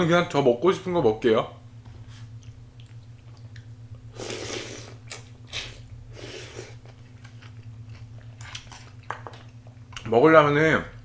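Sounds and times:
steady low hum: 0.0s - 11.0s
crunchy chewing clicks: 2.4s - 4.0s, 6.8s - 10.2s
person slurping soup: 4.1s - 6.8s.

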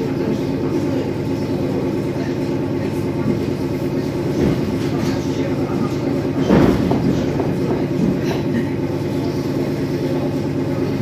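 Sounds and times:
train hum: 0.0s - 11.0s
train wheels rumbling: 2.9s - 10.1s
knocks: 6.3s - 8.3s.

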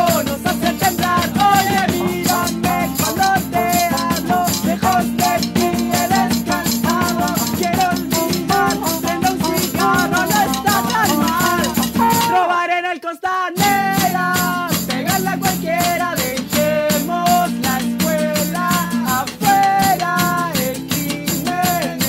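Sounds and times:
hand percussion: 0.0s - 12.4s, 13.6s - 22.0s
strummed guitars: 0.0s - 12.5s, 13.6s - 22.0s
trumpet: 11.2s - 12.6s.

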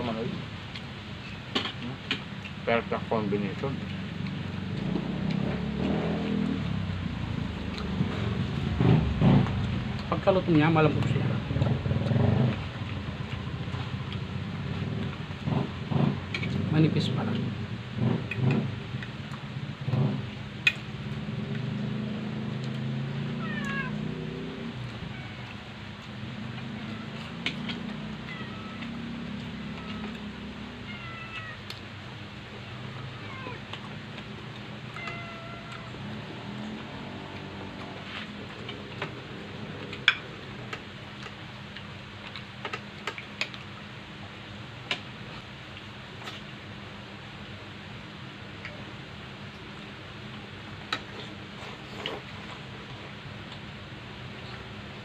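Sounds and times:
steady low hum: 0.0s - 55.0s
cat meowing: 23.3s - 24.1s, 25.0s - 25.7s, 26.6s - 27.4s, 28.1s - 31.7s, 32.8s - 33.8s, 34.9s - 36.7s.

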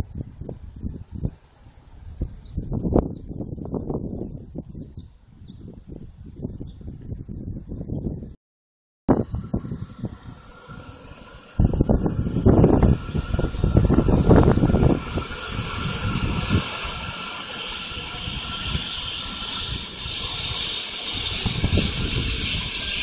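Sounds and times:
low buffeting rumble: 0.0s - 8.4s, 9.2s - 23.0s
helicopter turbine whine: 9.1s - 23.0s
rushing turbine noise: 9.1s - 23.0s.

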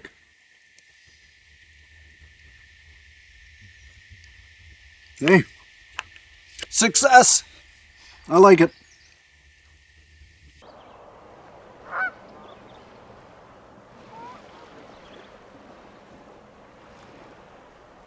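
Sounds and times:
faint outdoor hiss: 0.0s - 18.0s
geese honking: 10.6s - 18.0s.

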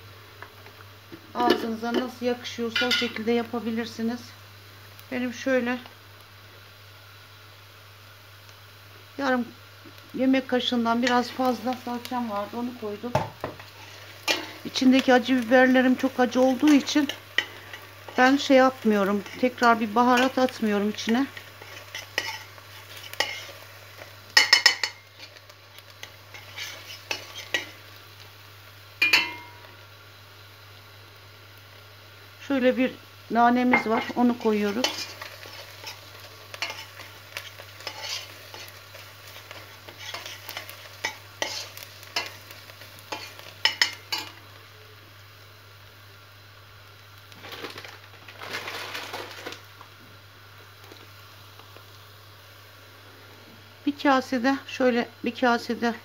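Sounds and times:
faint sizzle: 0.0s - 56.0s
faint steady hum: 0.0s - 56.0s
metal spoon scraping a pot: 21.6s - 23.5s.

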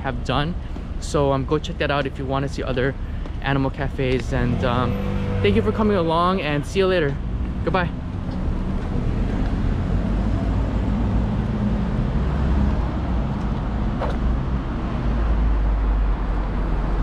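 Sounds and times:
cars passing on road: 0.0s - 17.0s.

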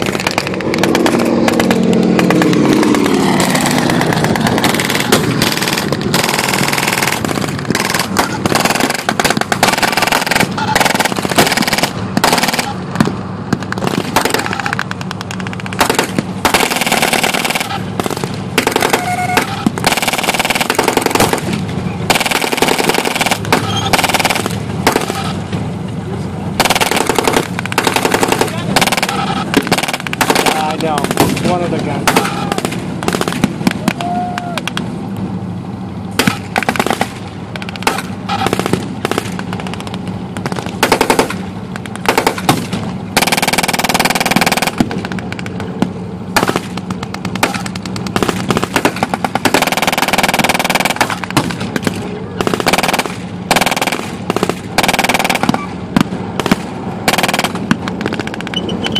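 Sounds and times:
aircraft engine passing overhead: 0.0s - 8.9s
machine-gun fire: 0.0s - 25.4s, 26.6s - 33.8s, 36.2s - 45.5s, 46.3s - 58.6s.

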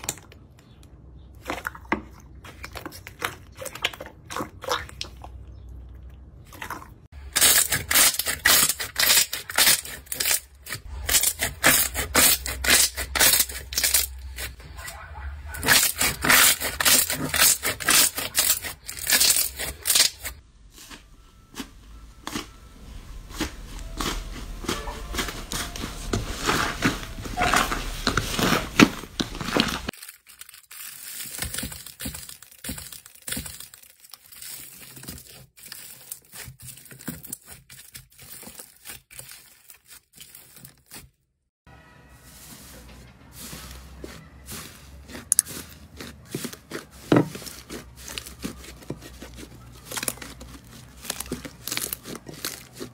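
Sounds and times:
aluminium foil crinkling: 15.5s - 20.4s, 23.3s - 41.2s, 42.3s - 52.9s
slime crackling and popping: 27.4s - 41.0s, 44.5s - 52.9s.

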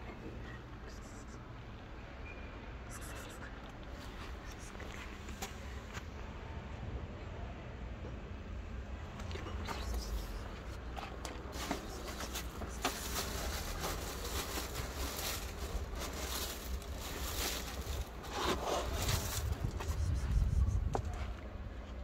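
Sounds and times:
cats crunching dry kibble: 11.0s - 20.4s.

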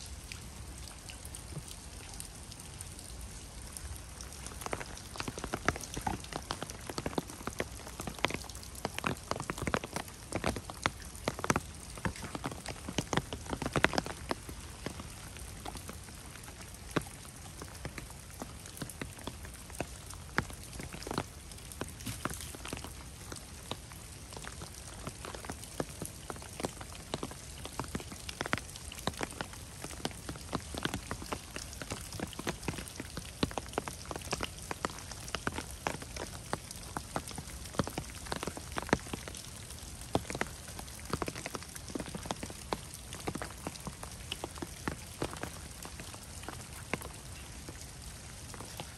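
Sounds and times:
rain pattering: 0.0s - 48.9s.

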